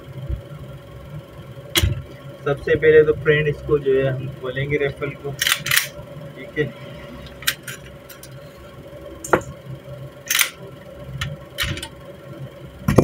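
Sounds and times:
rifle parts clicking and clacking: 5.4 - 5.9, 10.3 - 10.6.

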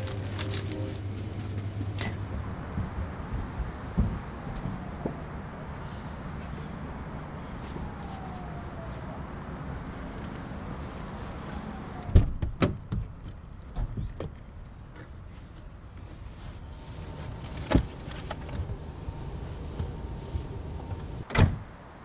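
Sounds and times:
quiet rummaging: 0.0 - 2.2, 16.1 - 21.2
car doors clunking: 17.0 - 21.6.

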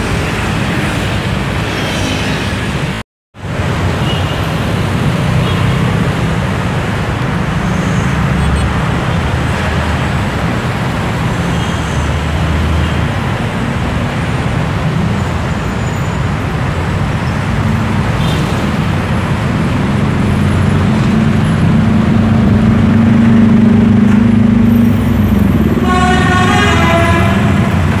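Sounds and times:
highway traffic noise: 0.0 - 28.0
heavy vehicle engine drone: 16.2 - 28.0
multi-note vehicle horn: 25.7 - 28.0.

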